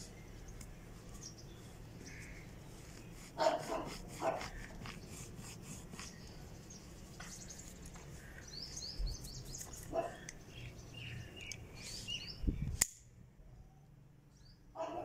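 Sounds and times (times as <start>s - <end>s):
dog barking: 3.4s - 4.6s, 9.9s - 10.2s, 14.8s - 15.0s.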